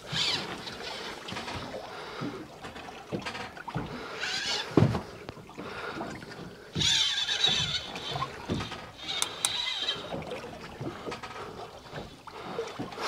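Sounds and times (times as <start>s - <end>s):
fishing reel drag buzzing: 0.1s - 1.2s, 6.8s - 10.2s.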